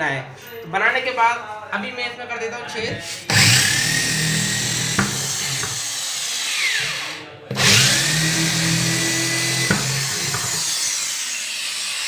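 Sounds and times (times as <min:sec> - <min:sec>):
electric drill boring through panel: 0:03.0 - 0:12.0.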